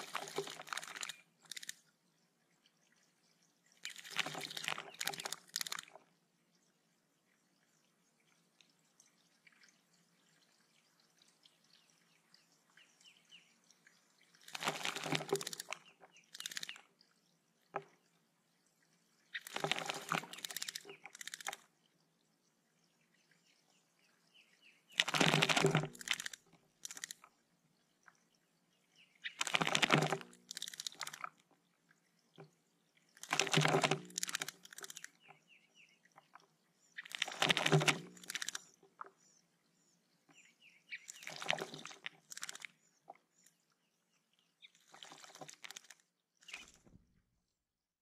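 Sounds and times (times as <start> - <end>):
bird splashing in water: 0.0 - 1.8, 3.8 - 6.0, 14.2 - 17.0, 19.3 - 21.7, 24.9 - 27.3, 29.2 - 31.5, 33.1 - 35.4, 37.0 - 39.1, 40.9 - 42.8, 44.8 - 46.9.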